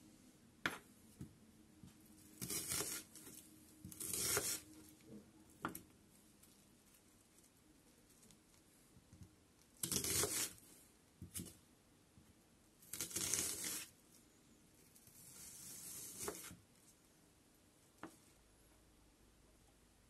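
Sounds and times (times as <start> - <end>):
knife slicing onion: 2.3 - 4.8, 9.8 - 10.6, 12.9 - 14.0, 15.0 - 16.6.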